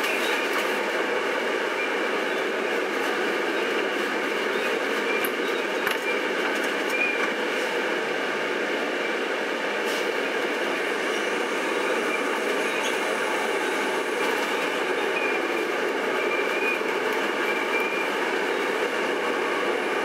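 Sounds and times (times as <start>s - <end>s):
bus cabin road noise: 0.0s - 20.0s.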